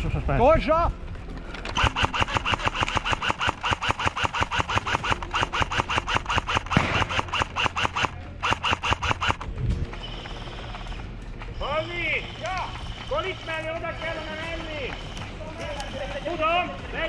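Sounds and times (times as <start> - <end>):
airsoft gun firing: 1.8 - 9.5.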